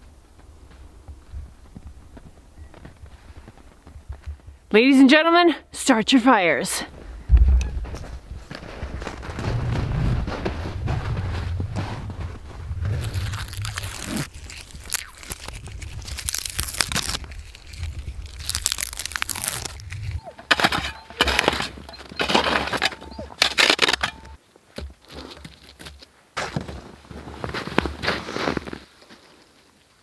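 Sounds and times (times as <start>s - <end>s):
dead sticks crunching in snow: 12.8s - 24.4s
bark tearing and peeling: 12.9s - 24.1s.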